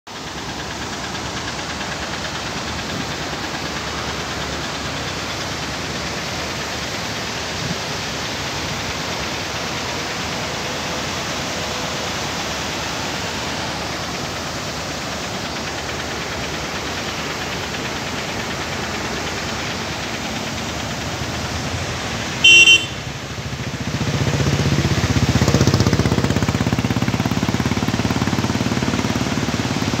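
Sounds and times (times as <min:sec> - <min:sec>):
vehicle engine rumble: 0:00.1 - 0:30.0
vehicle horn: 0:22.4 - 0:23.0.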